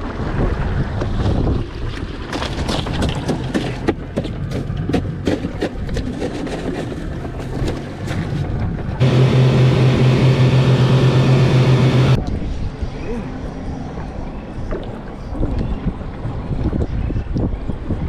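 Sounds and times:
wind: 0.0s - 18.0s
outboard motors droning: 3.8s - 17.4s.

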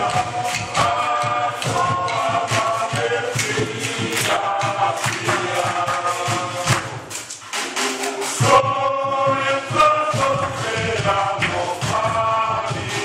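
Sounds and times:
group of adults chanting: 0.0s - 7.0s, 7.8s - 13.0s
sharp hand claps: 0.0s - 8.5s.

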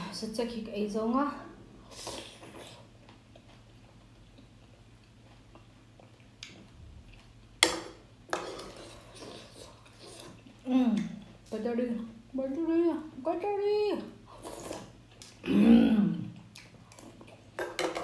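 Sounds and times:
quiet chewing: 1.8s - 7.6s, 8.6s - 11.5s, 14.3s - 15.5s, 16.1s - 17.6s.

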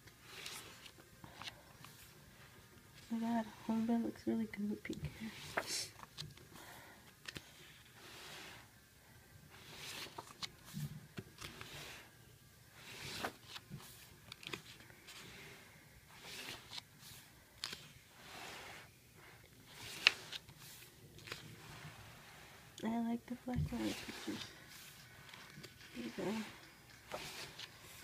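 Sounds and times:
paper rustling: 0.0s - 3.2s, 5.1s - 8.5s, 9.5s - 12.1s, 12.8s - 15.4s, 16.1s - 18.8s, 19.6s - 22.5s, 23.4s - 28.0s
photobook pages turning: 0.0s - 3.6s, 4.6s - 8.7s, 9.5s - 12.1s, 12.7s - 22.8s, 23.4s - 28.0s.

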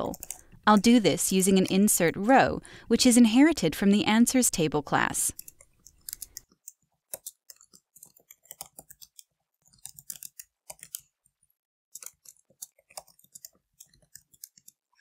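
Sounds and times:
computer keyboard typing: 0.0s - 1.8s, 5.3s - 11.2s, 11.9s - 15.0s.

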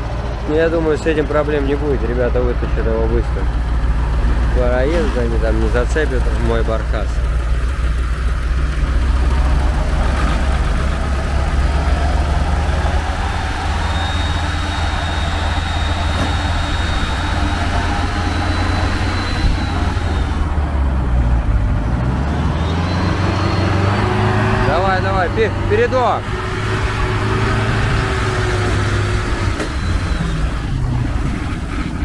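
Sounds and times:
engines idling: 0.0s - 32.0s
faint high whine: 13.2s - 20.5s.

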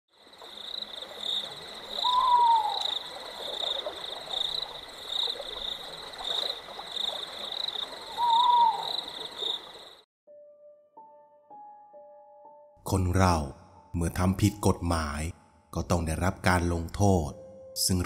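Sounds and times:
frogs and insects chorus: 0.1s - 10.1s
owl hooting: 2.0s - 4.0s, 8.1s - 9.6s.

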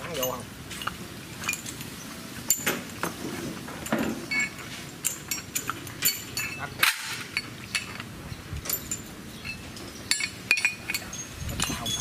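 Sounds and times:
sharp metal clinks: 3.8s - 12.0s.

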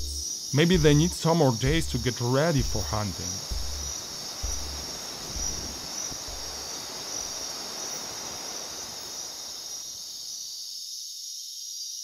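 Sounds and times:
insects chirping at night: 0.0s - 12.0s
river water rushing: 3.5s - 9.6s.

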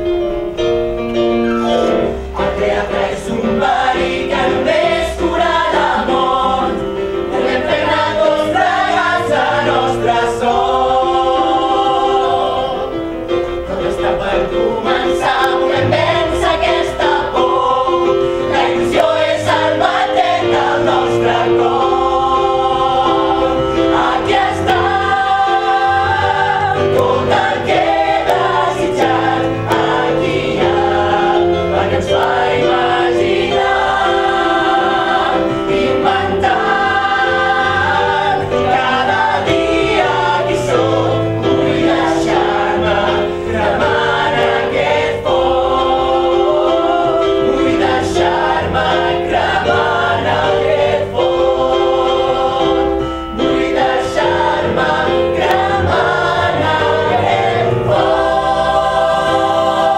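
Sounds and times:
choir singing over chords: 0.0s - 59.9s.

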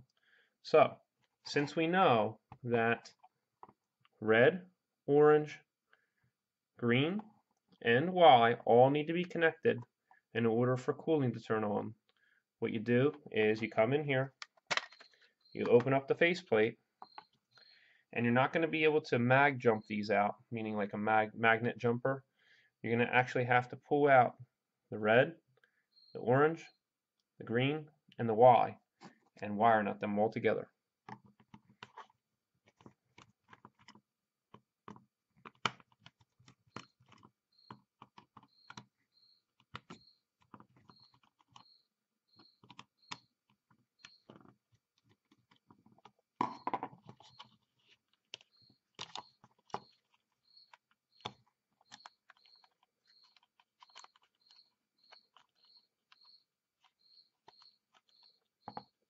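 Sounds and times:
faint high chirp: 17.0s - 17.9s, 25.7s - 26.8s, 36.7s - 43.4s, 44.0s - 44.4s, 48.5s - 59.0s.

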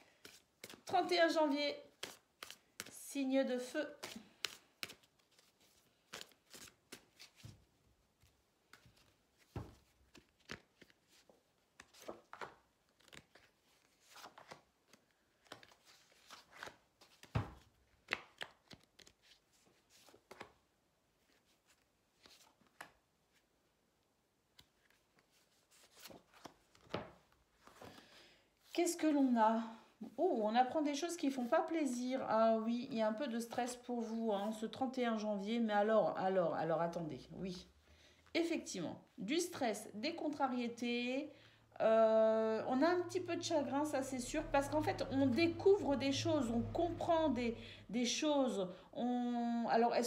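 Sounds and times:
cards shuffling: 1.9s - 3.0s, 3.9s - 7.6s, 8.2s - 20.6s, 21.2s - 23.4s, 24.5s - 28.0s.

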